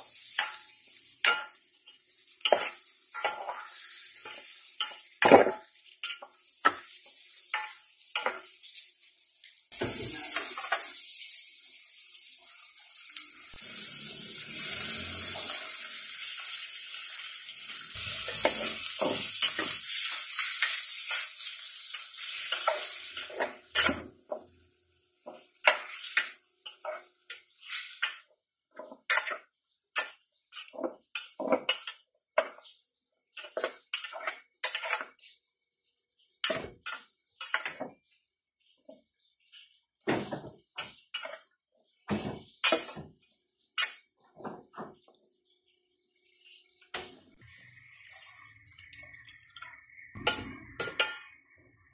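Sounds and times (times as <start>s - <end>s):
metal spatula scraping pot: 0.0s - 8.8s, 13.6s - 24.5s, 25.3s - 32.8s, 33.4s - 35.2s, 40.8s - 41.5s, 49.6s - 51.6s
food sizzling in a pot: 0.0s - 35.3s, 36.1s - 43.0s, 45.3s - 51.9s.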